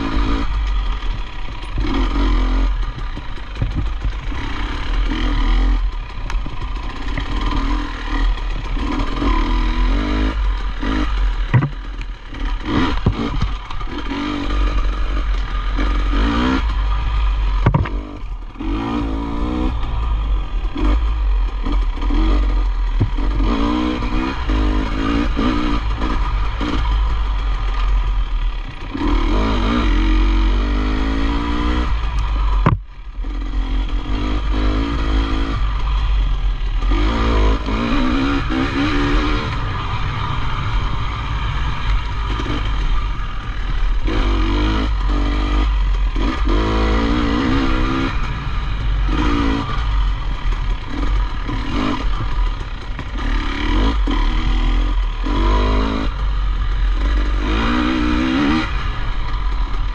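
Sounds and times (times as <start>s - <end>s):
motorcycle engine revving: 0.0s - 59.9s
rattling clatter: 2.8s - 4.6s, 11.4s - 14.1s
sharp knock: 11.5s - 11.8s, 17.6s - 18.0s.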